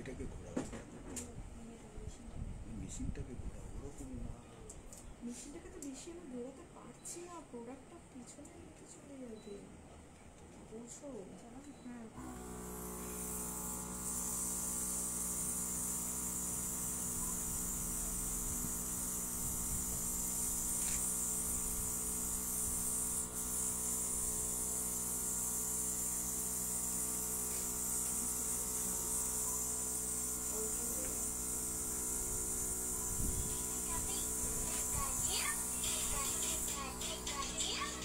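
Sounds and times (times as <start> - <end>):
airbrush hissing air: 12.2 - 38.0
compressor humming: 12.2 - 38.0.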